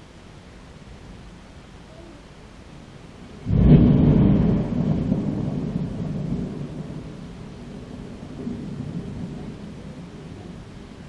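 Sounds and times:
thunder rumbling: 0:03.3 - 0:11.0.

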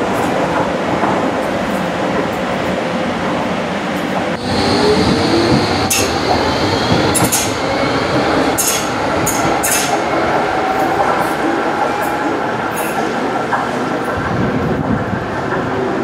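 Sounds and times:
train wheels on rail: 0:00.0 - 0:16.0.

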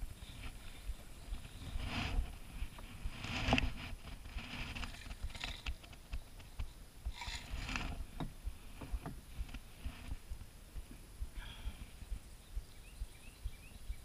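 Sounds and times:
paddle swishing through water: 0:07.1 - 0:08.2.

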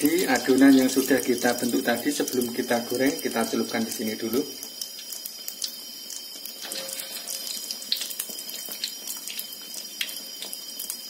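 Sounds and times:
patties deep-frying in oil: 0:00.0 - 0:11.0.

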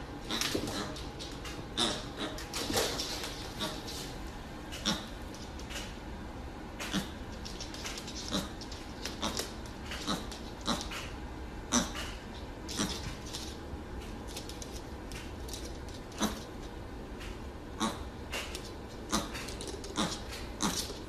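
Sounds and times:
hooves tapping on hard floor: 0:00.1 - 0:06.0, 0:06.8 - 0:11.2, 0:11.8 - 0:21.0
pig grunting: 0:01.7 - 0:02.4, 0:04.8 - 0:05.2, 0:06.8 - 0:07.2, 0:08.2 - 0:13.2, 0:17.7 - 0:18.2, 0:18.9 - 0:21.0.

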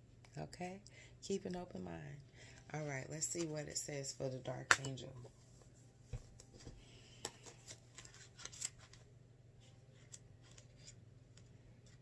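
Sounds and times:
paper pages rustling: 0:05.6 - 0:11.0.

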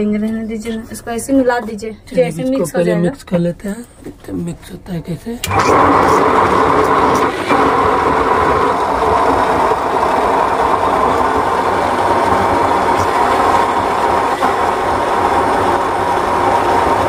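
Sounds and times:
mixer grinder running: 0:05.4 - 0:17.0.

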